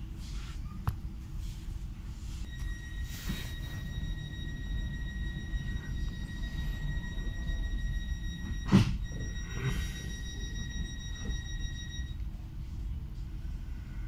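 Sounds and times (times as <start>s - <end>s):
train rumble: 1.6s - 14.0s
high steady whine: 2.2s - 14.0s.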